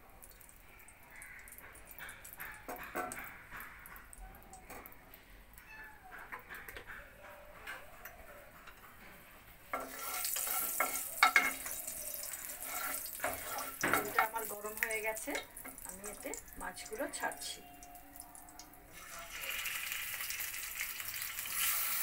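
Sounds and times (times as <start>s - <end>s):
oil frying sizzle: 9.6s - 22.0s
pan and bowl clinking: 9.7s - 20.4s.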